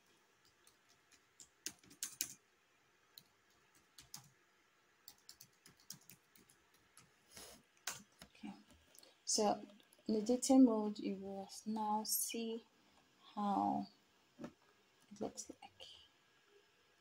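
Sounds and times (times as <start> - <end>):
keyboard typing: 0.4 - 2.4, 3.2 - 4.4, 5.0 - 7.1, 7.8 - 8.3.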